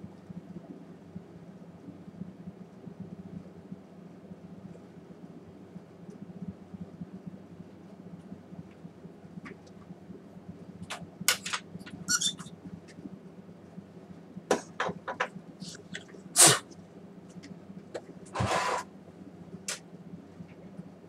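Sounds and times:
steady low hum: 0:00.0 - 0:21.0
scraping rustle: 0:18.3 - 0:18.9.

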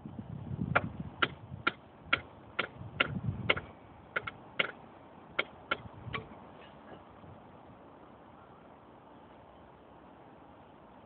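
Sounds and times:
metal taps on steel rail: 0:00.7 - 0:04.8, 0:05.4 - 0:07.0.

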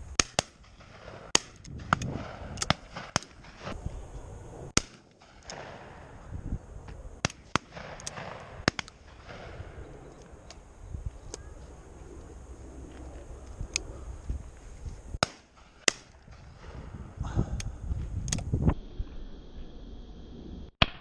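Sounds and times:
shotgun shots: 0:00.2 - 0:03.8, 0:04.8 - 0:06.2, 0:07.2 - 0:09.8.

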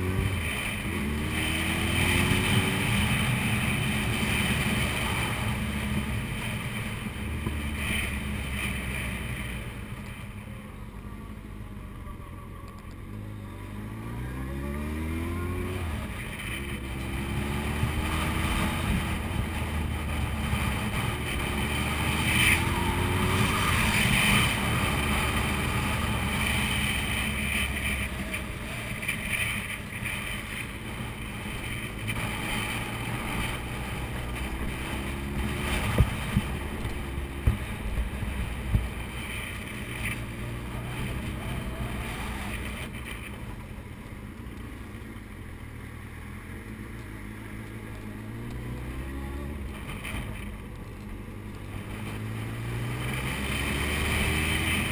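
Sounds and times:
motorcycle engine revving: 0:00.0 - 0:09.8, 0:13.1 - 0:43.6, 0:51.5 - 0:54.9
wind and road noise: 0:00.0 - 0:54.9.

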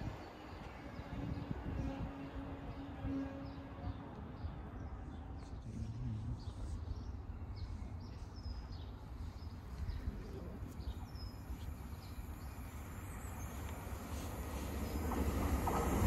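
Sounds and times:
small birds chirping: 0:04.4 - 0:16.0
approaching train rumble: 0:08.6 - 0:16.0.

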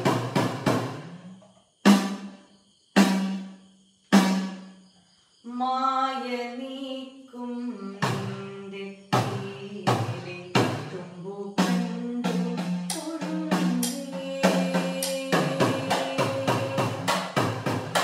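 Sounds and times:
woman singing: 0:05.4 - 0:17.8.

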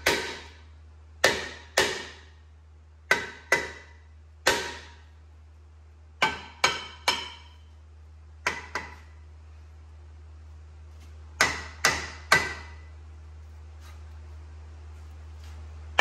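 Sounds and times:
hammer striking brake rotor: 0:00.0 - 0:00.6, 0:01.2 - 0:02.3, 0:03.1 - 0:05.1, 0:06.2 - 0:07.7, 0:11.4 - 0:12.9.

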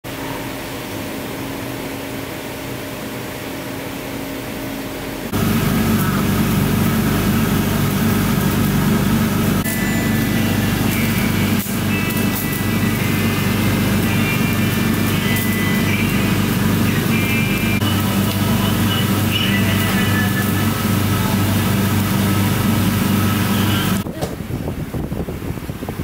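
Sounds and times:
steady hum: 0:00.1 - 0:26.0
gas burner rushing: 0:05.2 - 0:26.0
thin high tones: 0:09.6 - 0:18.0.

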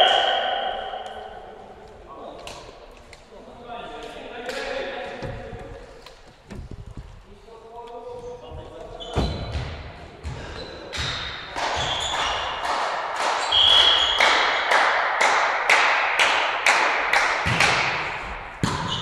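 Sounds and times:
referee whistle blast: 0:00.0 - 0:01.0, 0:13.5 - 0:14.2
sharp echoing smacks: 0:11.0 - 0:19.0.

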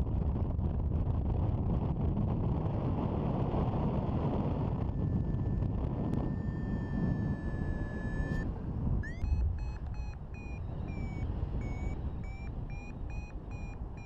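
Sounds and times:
wind rushing over microphone: 0:00.0 - 0:14.0
steady high electronic tone: 0:09.0 - 0:14.0.

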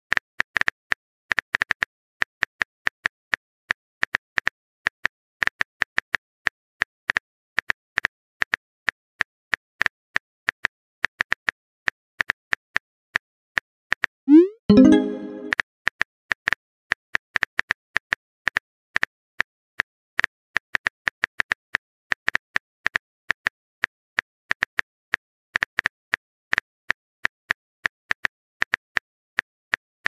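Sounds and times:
keyboard typing clicks: 0:14.3 - 0:15.6.

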